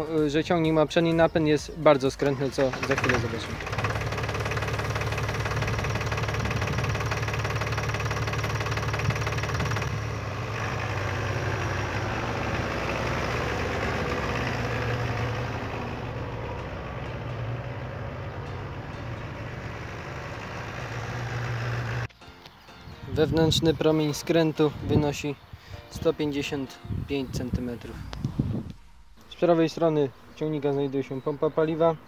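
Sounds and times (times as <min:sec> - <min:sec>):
tractor diesel engine running: 0:02.1 - 0:22.1.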